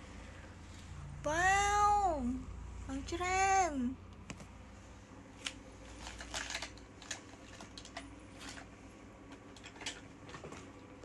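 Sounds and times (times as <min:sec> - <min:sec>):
plastic toys clattering: 0:05.4 - 0:10.7.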